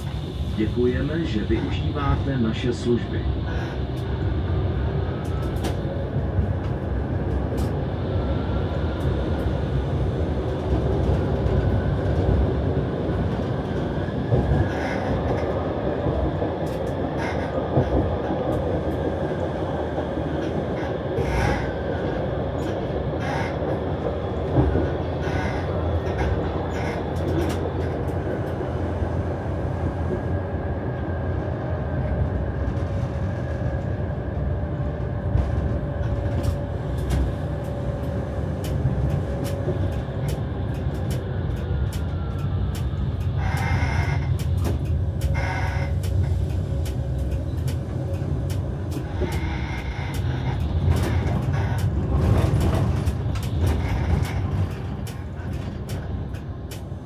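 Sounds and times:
tram motor tone: 0.0 - 57.0
tram wheels rumbling on track: 0.0 - 57.0
clicks over rail joints: 35.4 - 57.0.

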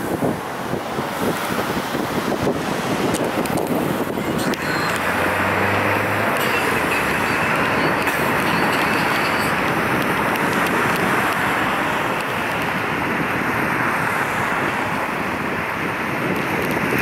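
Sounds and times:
train wheels rolling on rails: 4.4 - 12.8.

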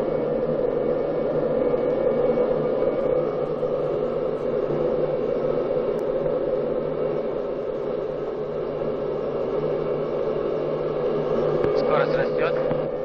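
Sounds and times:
airliner engines at takeoff: 0.0 - 13.0.

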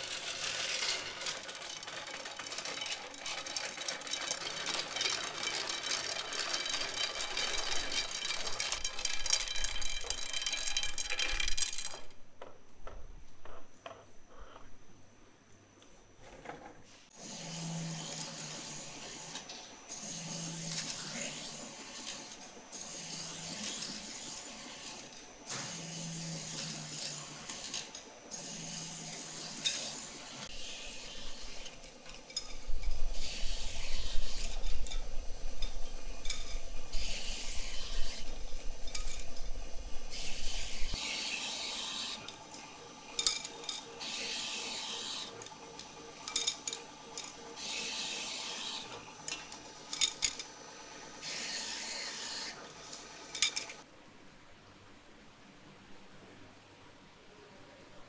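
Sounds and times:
grinding wheel rasping: 0.0 - 12.1, 28.5 - 50.5.

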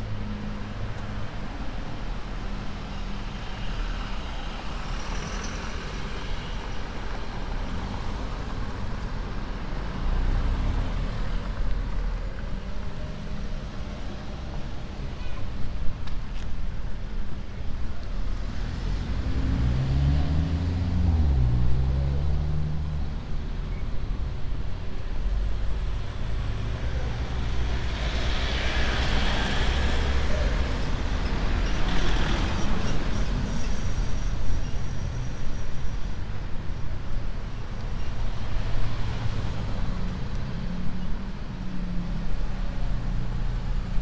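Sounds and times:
car engines passing: 17.6 - 35.4.

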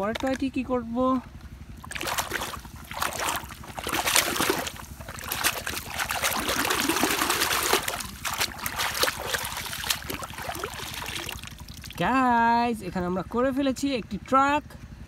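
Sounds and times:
water splashing and sloshing: 1.4 - 12.4.

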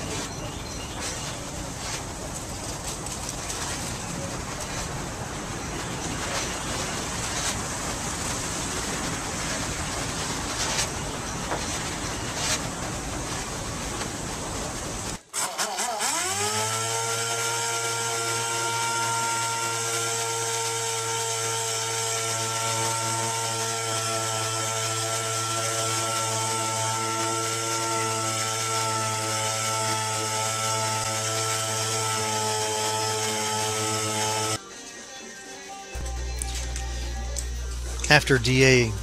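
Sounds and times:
rushing background noise: 0.0 - 15.2
pneumatic sander humming and whining: 15.4 - 34.6.

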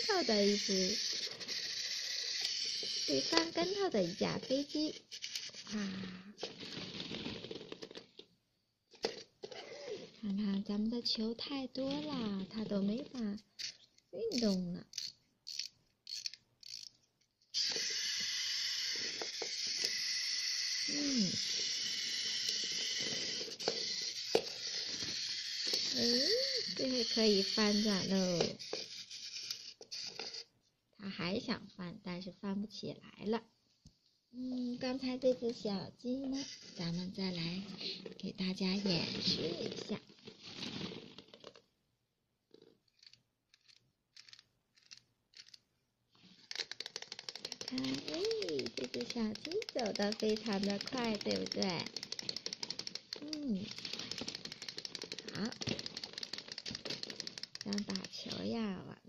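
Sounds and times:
toy motor whirring buzz: 0.0 - 8.0, 9.0 - 30.5, 34.4 - 40.0, 42.6 - 45.6, 46.2 - 58.5
plastic balls rustling and knocking: 0.0 - 30.5, 34.4 - 41.8, 42.4 - 58.8
wind-up key ratcheting clicks: 14.3 - 17.0, 46.5 - 58.1
sharp clicks: 46.5 - 58.5.

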